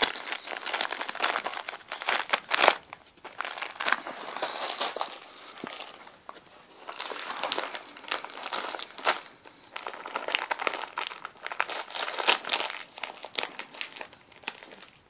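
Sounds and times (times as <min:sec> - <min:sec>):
sharp paper crack: 0:00.0 - 0:05.8
wrapping paper crinkling: 0:00.0 - 0:15.0.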